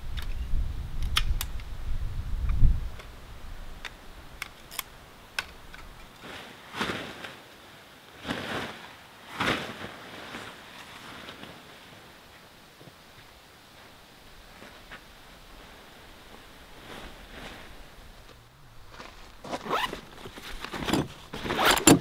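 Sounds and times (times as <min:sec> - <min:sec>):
camping gear clicking and clinking: 0:03.8 - 0:07.4, 0:16.8 - 0:22.0
tent fabric swishing: 0:06.2 - 0:22.0.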